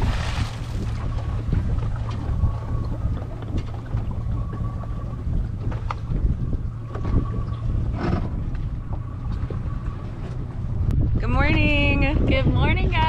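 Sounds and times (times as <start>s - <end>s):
anchor splash: 0.0s - 8.7s
boat engine idling: 0.0s - 13.0s
wind buffeting microphone: 0.0s - 13.0s.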